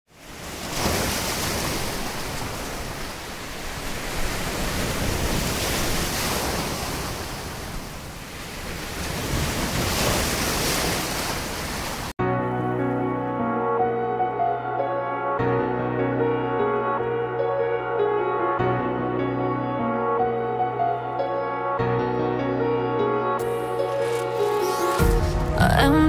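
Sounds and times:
sea waves washing: 0:00.1 - 0:12.2, 0:23.4 - 0:26.0
music: 0:12.2 - 0:26.0.

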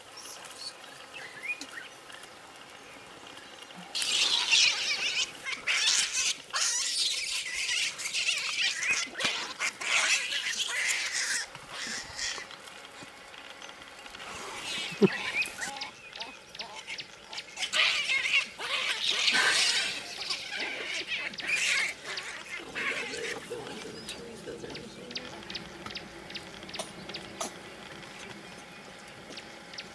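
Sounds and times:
baboons screeching: 0:03.9 - 0:13.1, 0:14.1 - 0:28.5.

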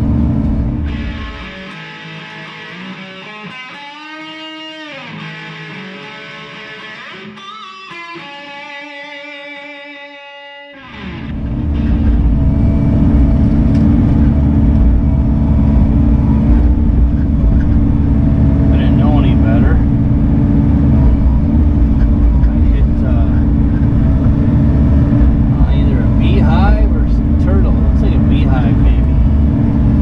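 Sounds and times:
diesel engine running loudly: 0:00.0 - 0:01.6, 0:10.9 - 0:30.0
electric guitar lead: 0:00.0 - 0:30.0.

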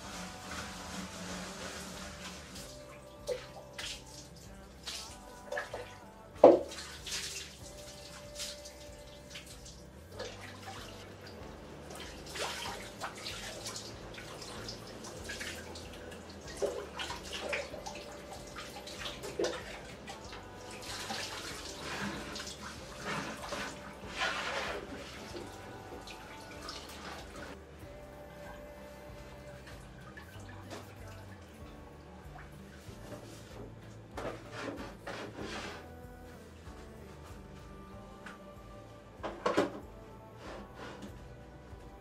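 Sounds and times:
water running and splashing: 0:06.5 - 0:27.6.

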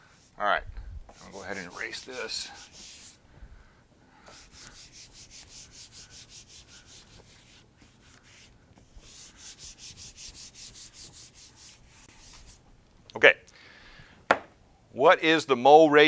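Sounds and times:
eraser rubbing on whiteboard: 0:01.1 - 0:03.2, 0:04.3 - 0:12.6.

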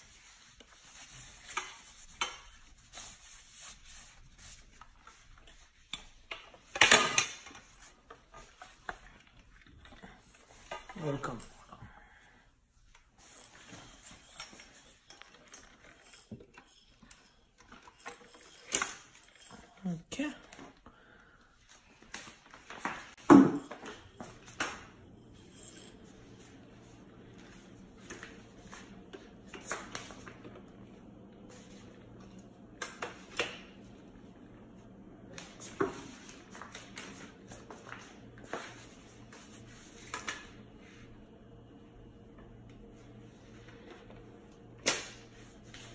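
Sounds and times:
knocks and rustles of handling: 0:12.8 - 0:34.0.

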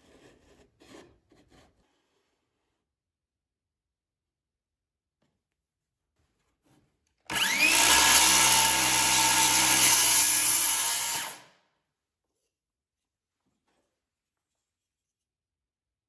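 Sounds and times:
circular saw cutting wood: 0:07.3 - 0:11.5.

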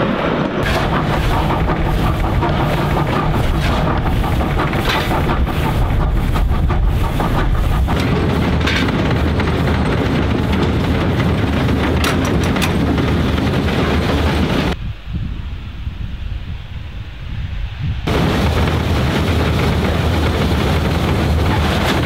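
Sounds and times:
steam locomotive rumble: 0:00.0 - 0:22.0.

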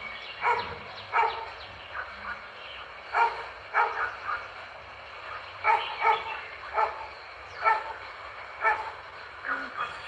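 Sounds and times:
dog barking: 0:00.4 - 0:02.2, 0:03.2 - 0:04.4, 0:05.6 - 0:07.0, 0:07.6 - 0:07.9, 0:08.6 - 0:09.6.

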